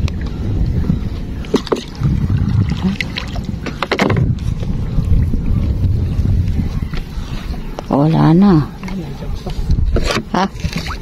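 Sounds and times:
steady low rumble: 0.0 - 10.0
water lapping at hull: 0.0 - 11.0
paddle strokes: 8.7 - 11.0.

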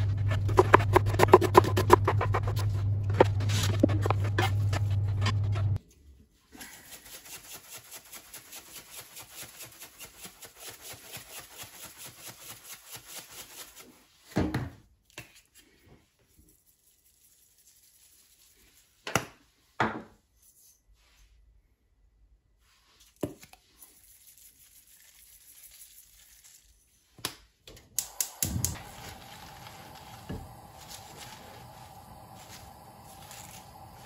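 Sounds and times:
loud low hum: 0.0 - 5.8
pepper grinder grinding: 0.1 - 5.5
jar of seeds shaking: 6.6 - 14.2, 16.5 - 19.0, 23.6 - 26.8, 28.2 - 34.0.

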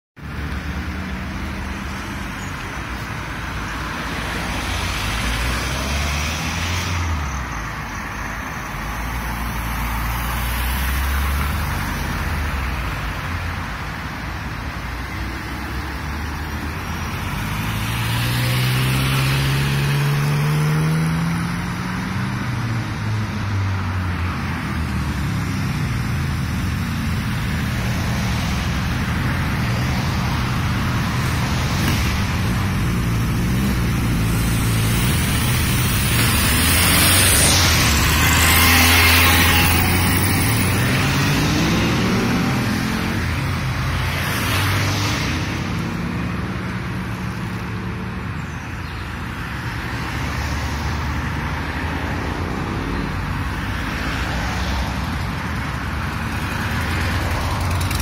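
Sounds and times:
car engines passing: 0.2 - 58.0
engine accelerating: 28.6 - 43.5.

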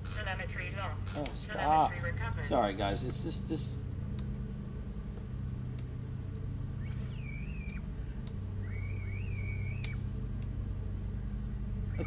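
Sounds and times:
small drone motors buzzing: 2.5 - 12.0
high wavering motor whistle: 6.6 - 10.2, 11.5 - 12.0.

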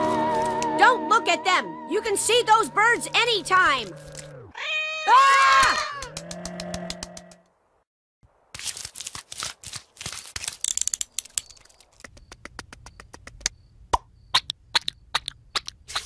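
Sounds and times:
sharp irregular clicks and crackles: 10.3 - 13.6.

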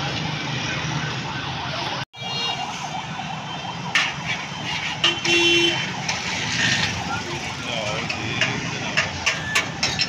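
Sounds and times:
busy street traffic: 0.0 - 10.0.

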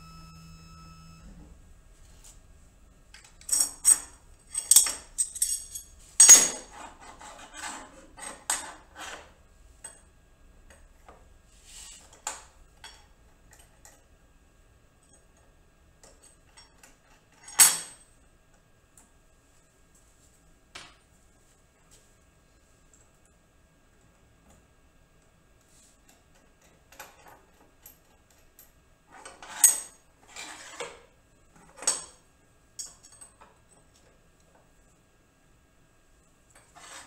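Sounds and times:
metal clinks of wrenches: 3.4 - 6.6.

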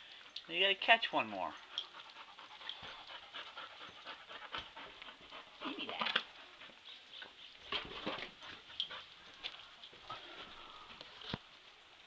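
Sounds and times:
dog panting: 1.5 - 10.6.

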